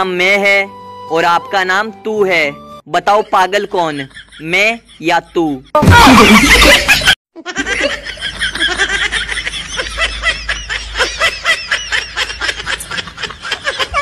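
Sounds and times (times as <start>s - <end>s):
loud laughter burst: 5.8s - 14.0s
high-pitched giggling: 6.2s - 14.0s.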